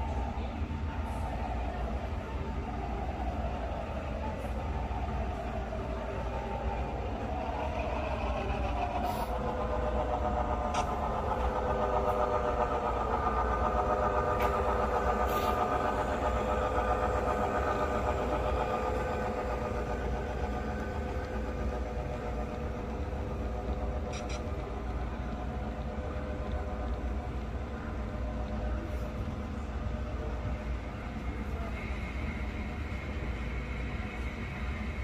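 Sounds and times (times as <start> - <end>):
model locomotives humming and whining: 0.0 - 35.0
light clicks from track: 10.5 - 16.5, 17.2 - 30.6.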